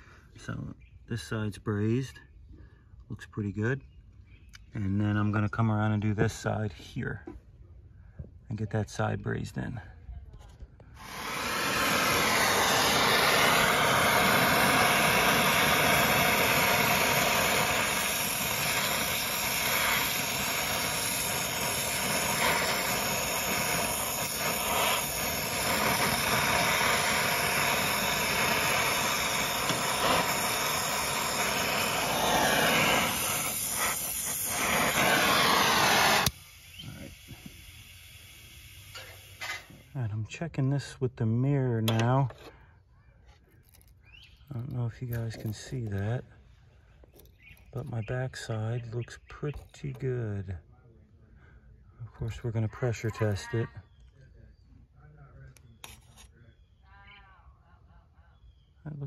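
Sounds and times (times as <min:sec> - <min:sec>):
torch flame hissing: 0:10.8 - 0:40.2, 0:44.5 - 0:46.2.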